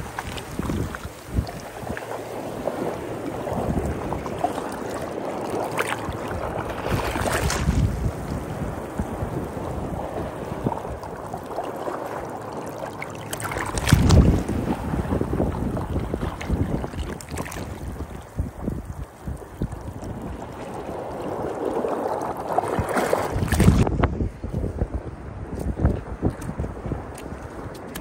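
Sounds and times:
sea waves washing onto beach: 0.0s - 28.0s
wind buffeting microphone: 0.0s - 28.0s.

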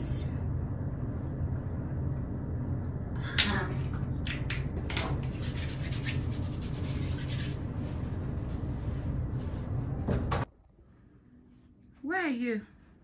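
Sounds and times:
hands rubbing skin and scalp: 5.2s - 9.8s.

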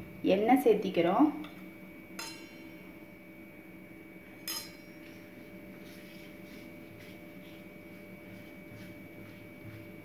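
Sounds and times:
hand swishing over dough: 5.3s - 10.0s.

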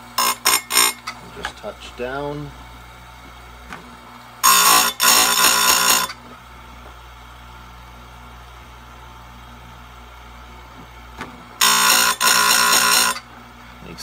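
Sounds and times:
grinding wheel screeching on metal: 0.0s - 1.2s, 4.4s - 6.2s, 11.6s - 13.3s
grinder motor humming: 0.0s - 14.0s.

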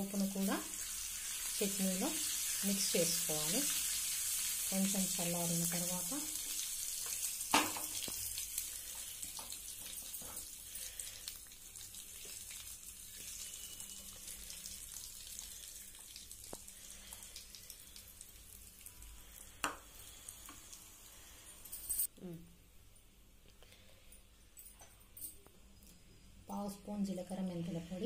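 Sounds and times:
hot oil sizzling in a pan: 0.0s - 21.8s.

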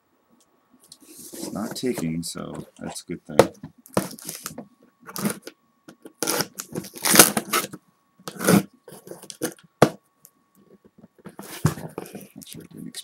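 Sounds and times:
package tearing and rustling: 6.2s - 7.7s.

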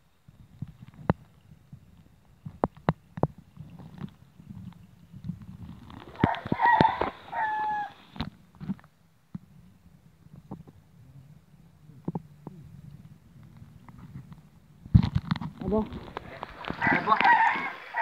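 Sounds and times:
rooster crowing: 6.2s - 8.1s, 16.8s - 18.0s.

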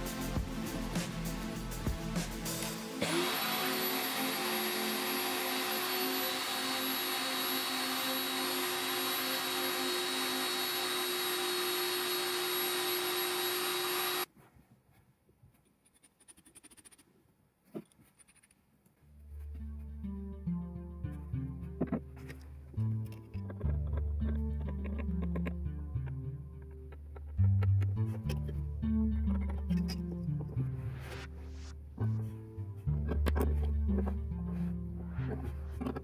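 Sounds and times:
cordless drill motor whine: 3.0s - 14.3s.

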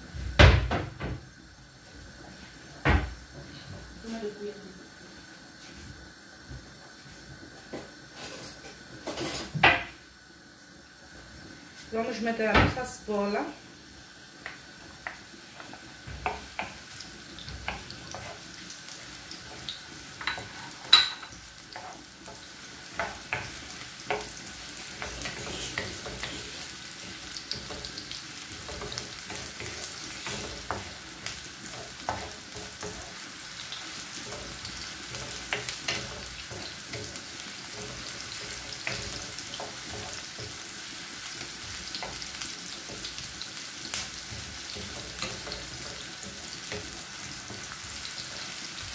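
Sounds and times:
onion sizzling in hot oil: 0.0s - 48.9s
wooden spoon scraping a pan: 14.5s - 48.9s.

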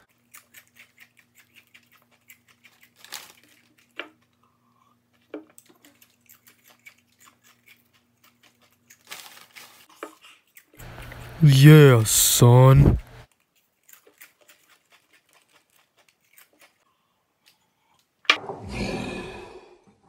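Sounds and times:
chips being chewed: 0.0s - 11.4s, 13.3s - 16.9s.

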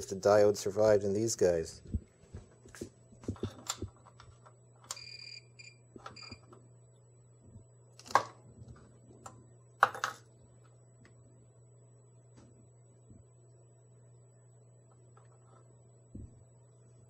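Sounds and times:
steady low hum: 0.0s - 17.0s
multimeter beeps: 4.9s - 6.6s.

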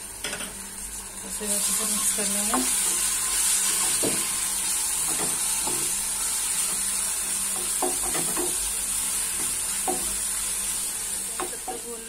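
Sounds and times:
onions sizzling in hot oil: 0.0s - 12.0s
spatula scraping a pan: 1.5s - 11.6s.

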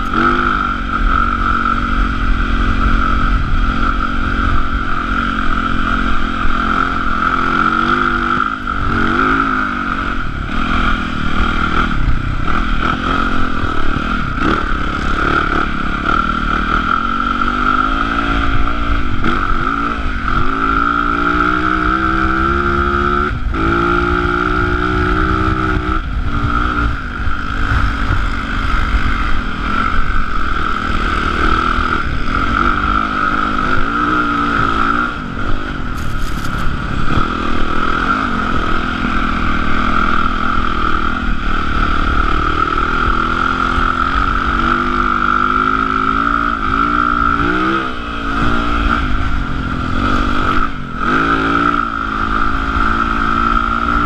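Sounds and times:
motorcycle engine revving: 0.0s - 54.0s
wind rumble on microphone: 0.0s - 54.0s
steady high whine: 23.3s - 51.1s.

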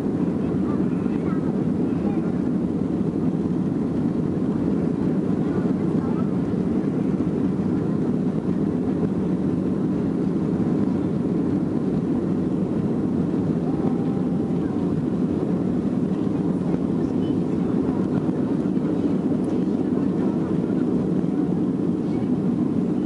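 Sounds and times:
airplane cabin rumble: 0.0s - 23.0s.

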